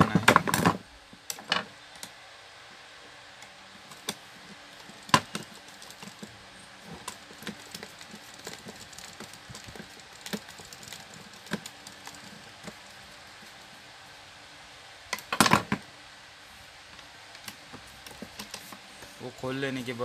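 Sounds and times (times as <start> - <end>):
screwdriver clicking on metal and plastic: 6.9 - 13.6.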